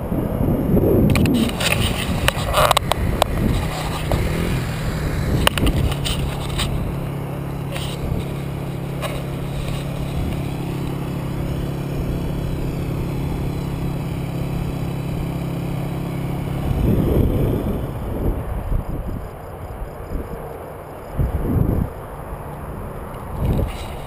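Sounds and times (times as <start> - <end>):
loud rumbling noise: 0.0 - 19.2
dirt bike engine idling: 1.1 - 19.7.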